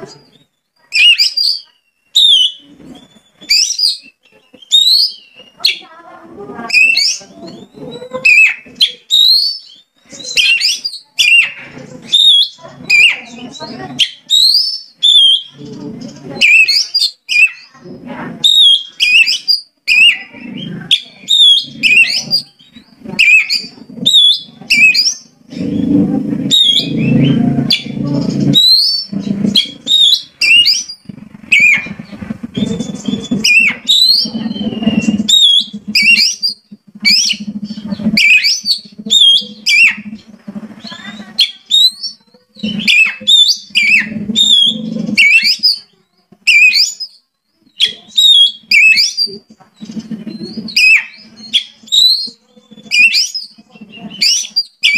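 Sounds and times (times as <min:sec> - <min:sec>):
bird singing whistled notes: 0:00.2 - 0:05.9, 0:06.7 - 0:15.7, 0:16.3 - 0:17.8, 0:18.4 - 0:54.9
low rough buzzing: 0:21.6 - 0:41.4.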